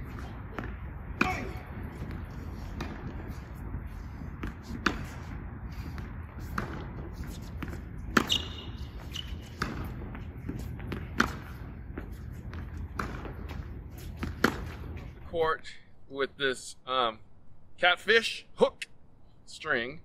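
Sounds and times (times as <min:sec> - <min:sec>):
racket hitting tennis ball: 0:00.0 - 0:15.2
tennis ball bouncing: 0:00.0 - 0:15.2.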